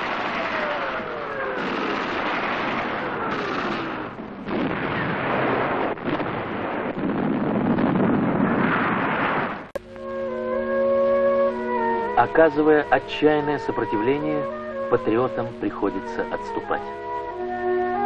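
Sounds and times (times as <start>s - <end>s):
rumble of explosions: 0.0s - 9.8s
shell bursting: 0.0s - 10.0s.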